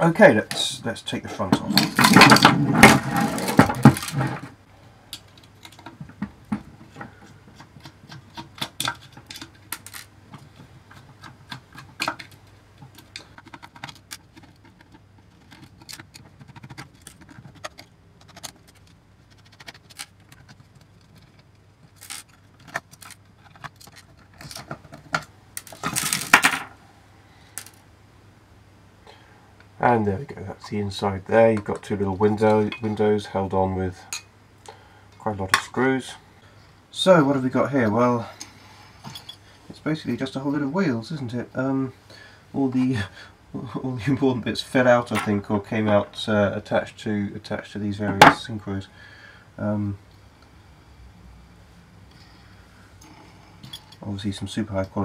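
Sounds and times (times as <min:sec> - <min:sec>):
handling clatter: 0:01.4 - 0:04.6, 0:05.2 - 0:26.7.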